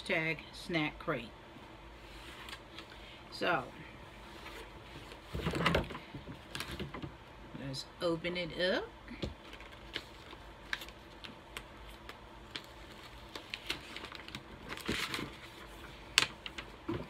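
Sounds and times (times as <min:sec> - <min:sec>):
cardboard rustle: 0:12.5 - 0:17.0.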